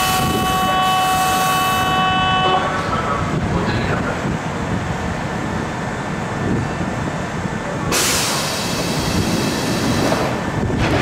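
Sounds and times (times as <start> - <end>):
train rumbling: 0.0 - 11.0
loud hiss: 7.9 - 10.4.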